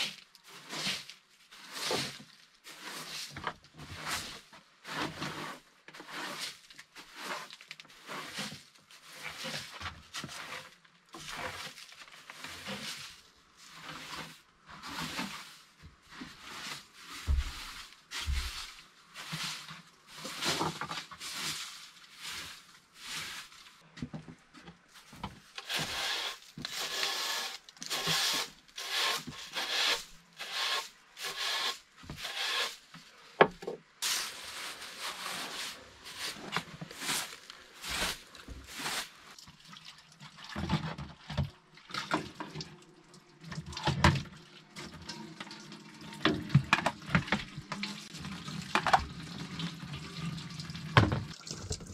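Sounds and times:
broom sweeping wooden floor: 0:00.0 - 0:23.9, 0:24.9 - 0:33.4, 0:34.0 - 0:39.4.

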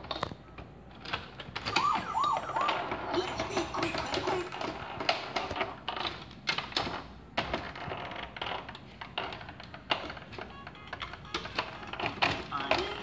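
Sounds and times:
toy music playing: 0:01.7 - 0:04.6, 0:10.2 - 0:13.0
plastic clicking and tapping: 0:08.7 - 0:13.0.

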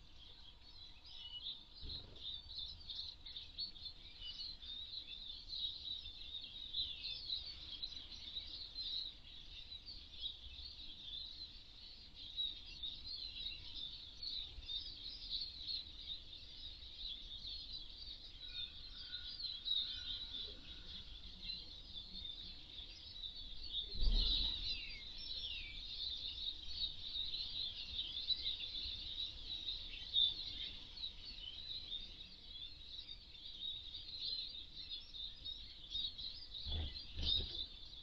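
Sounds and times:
finches twittering: 0:18.2 - 0:38.0.

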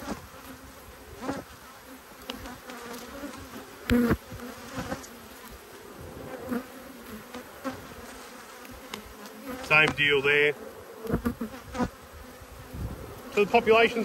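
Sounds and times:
honey bees humming: 0:00.0 - 0:14.0
wooden hive frames knocking: 0:08.8 - 0:10.2.

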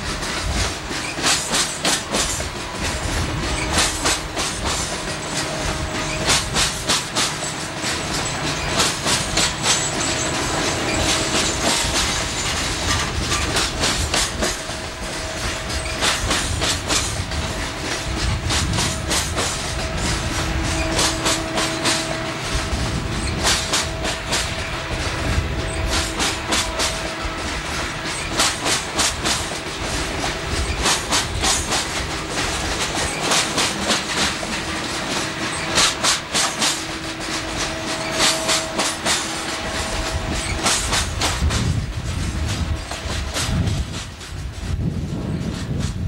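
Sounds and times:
train rumble: 0:00.0 - 0:46.0
wheels clacking over rail joints: 0:00.0 - 0:46.0.

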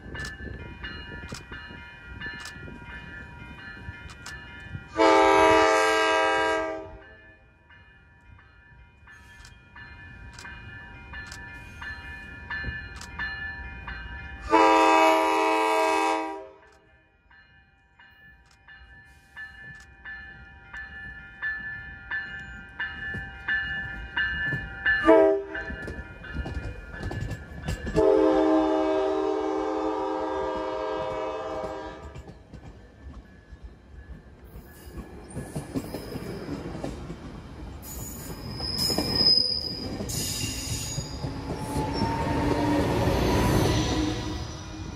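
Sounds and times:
train wheels rumbling on rails: 0:00.0 - 0:07.2, 0:18.3 - 0:44.9
train horn blasts: 0:04.9 - 0:07.2, 0:14.4 - 0:16.9, 0:25.0 - 0:25.7, 0:28.0 - 0:32.3, 0:41.6 - 0:44.8.

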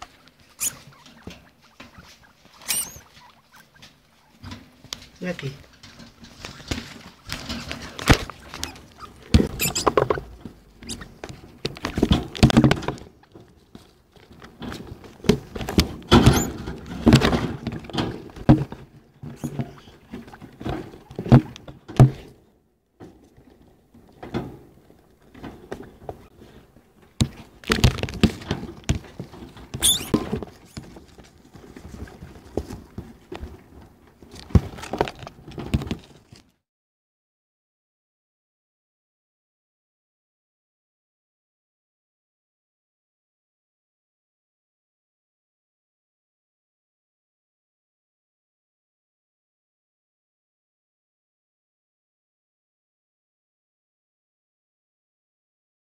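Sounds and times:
small rodents scrabbling: 0:00.0 - 0:18.5, 0:27.2 - 0:36.3
rustling scratching and thumps: 0:00.0 - 0:22.4, 0:23.0 - 0:36.6.

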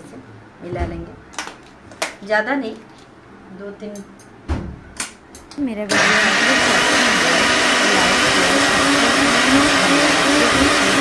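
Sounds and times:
mixer grinder running: 0:05.9 - 0:11.0.

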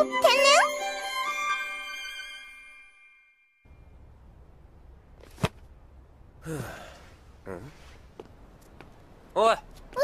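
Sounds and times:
chiming jingle: 0:00.0 - 0:03.7.

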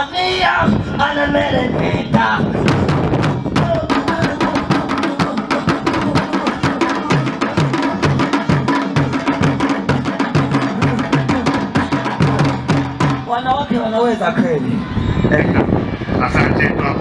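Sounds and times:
hand drums playing fast rhythm: 0:02.7 - 0:13.4.

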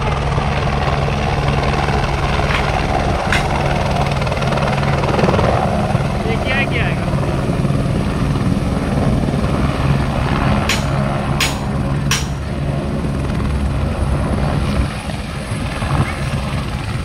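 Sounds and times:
helicopter rotor and engine drone: 0:00.0 - 0:17.0.

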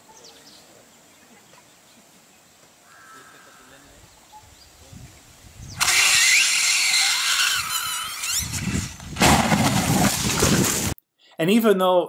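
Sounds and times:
high squealing glides: 0:05.8 - 0:09.0.

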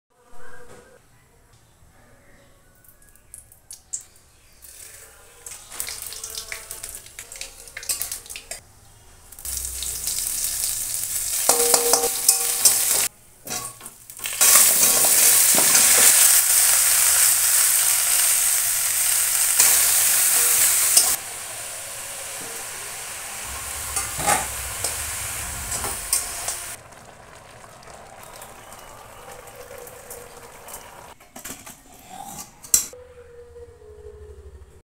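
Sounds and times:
vegetables sizzling in hot oil: 0:09.3 - 0:13.1, 0:13.8 - 0:31.2
metal spatula scraping pan: 0:23.4 - 0:26.8.

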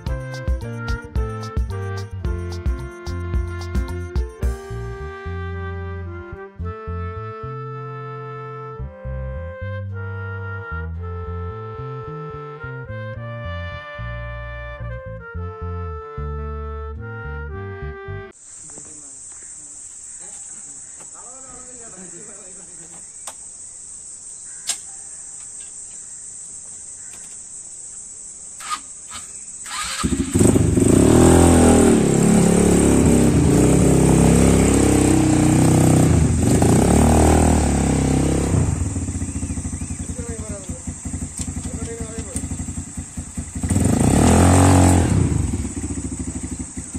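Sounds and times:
music: 0:00.0 - 0:18.4
high-pitched hiss: 0:18.3 - 0:30.4
quad bike engine running: 0:28.6 - 0:46.9.

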